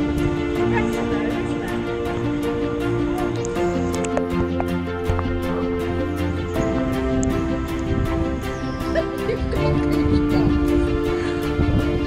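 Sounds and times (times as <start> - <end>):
long held chords: 0.0 - 12.0
light ticking percussion: 1.6 - 7.9.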